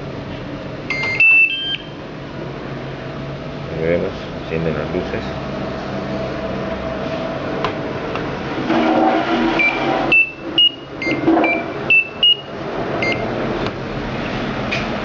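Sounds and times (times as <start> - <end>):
short electronic beeps: 0.9 - 2.0, 9.6 - 13.2.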